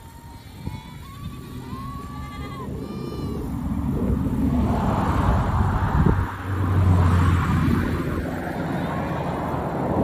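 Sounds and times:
low rumbling noise: 0:00.0 - 0:10.0
goats bleating: 0:00.2 - 0:03.6.

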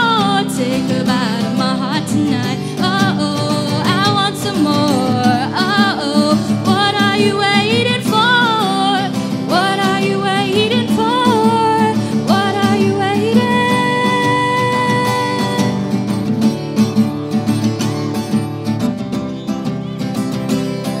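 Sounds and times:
woman singing into microphone: 0:00.0 - 0:16.2
strummed acoustic guitar: 0:00.0 - 0:21.0.

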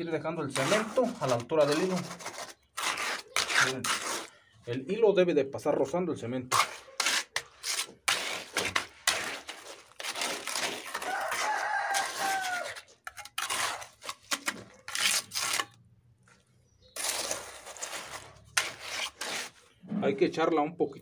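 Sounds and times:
trowel scraping wet concrete: 0:00.0 - 0:04.8, 0:05.8 - 0:20.3
rooster crowing: 0:11.0 - 0:12.8.

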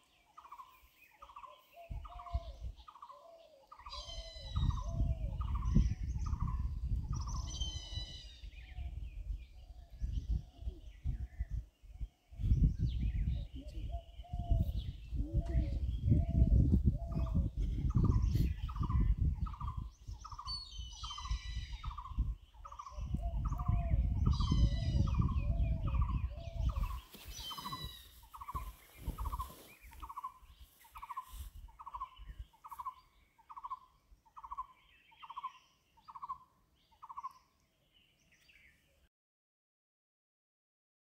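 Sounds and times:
birds descending calls: 0:18.0 - 0:37.4.

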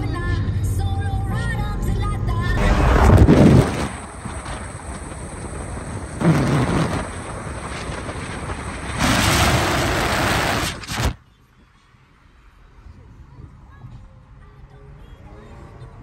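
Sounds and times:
car road noise: 0:00.0 - 0:16.0
rushing wind: 0:02.3 - 0:11.2.

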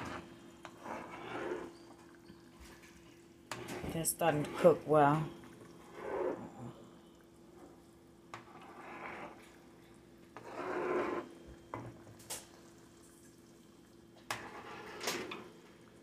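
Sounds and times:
faint steady hum: 0:00.0 - 0:16.0
sauce simmering: 0:04.3 - 0:16.0.

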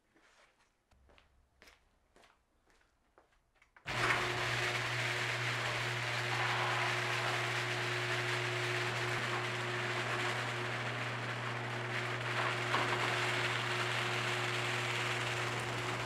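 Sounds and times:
garage door opener motor hum: 0:03.9 - 0:16.0.

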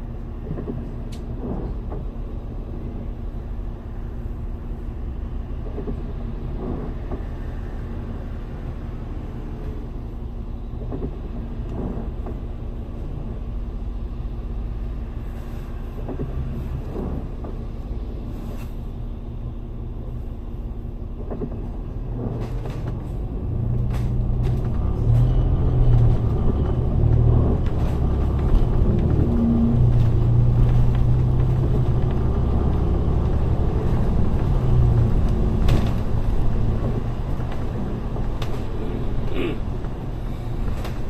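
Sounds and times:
bus engine drone: 0:00.0 - 0:41.0
knocks and rattles: 0:23.8 - 0:41.0.

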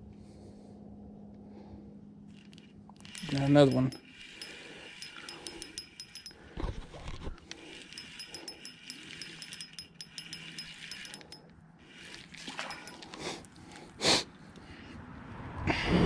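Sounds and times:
fishing reel ticking: 0:02.3 - 0:06.4, 0:07.4 - 0:13.2.

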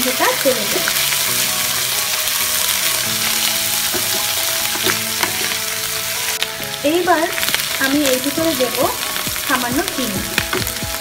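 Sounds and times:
onions sizzling in oil: 0:00.0 - 0:11.0
wooden spatula scraping pan: 0:02.9 - 0:05.7.

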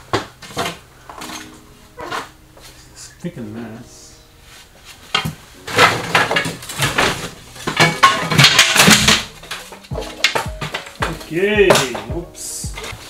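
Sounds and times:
wooden strips knocking together: 0:05.1 - 0:13.0.

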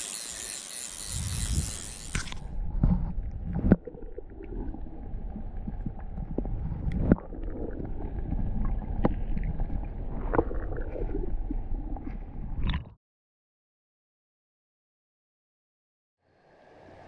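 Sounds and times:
low rumble on microphone: 0:01.1 - 0:12.7.

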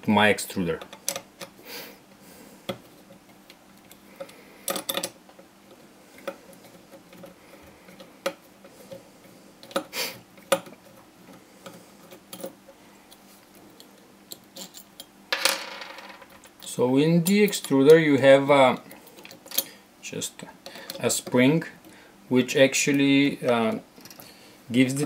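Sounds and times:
metal parts clicking and clinking: 0:04.7 - 0:05.2, 0:13.8 - 0:15.1, 0:23.6 - 0:24.3.

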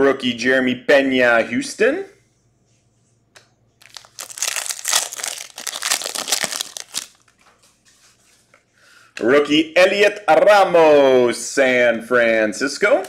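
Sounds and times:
plastic wrapper crinkling: 0:03.8 - 0:07.7.

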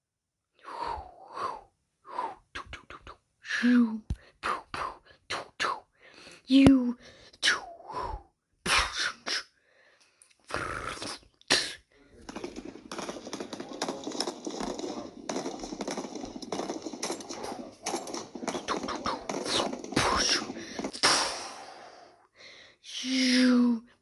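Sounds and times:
machine-gun fire: 0:12.2 - 0:21.5.

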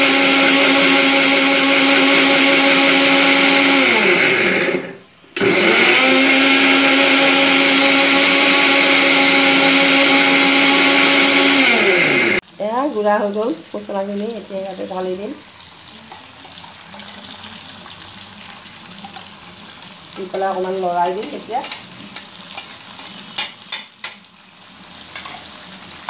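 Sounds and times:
mixer grinder motor grinding: 0:00.0 - 0:12.4.

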